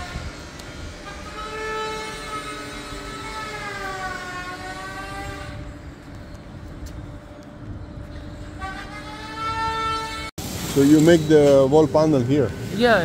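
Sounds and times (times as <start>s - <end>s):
long horn-like tone: 8.1s - 10.3s.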